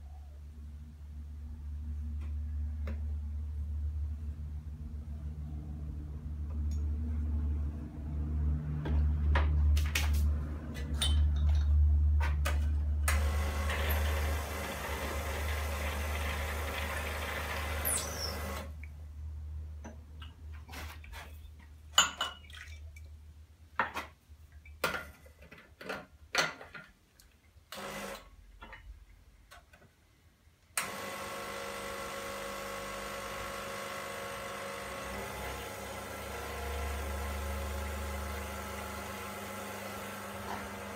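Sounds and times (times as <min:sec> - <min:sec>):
espresso machine pump running: 0:13.1 - 0:18.7, 0:30.8 - 0:40.9
espresso machine humming: 0:13.2 - 0:18.7, 0:30.8 - 0:40.9.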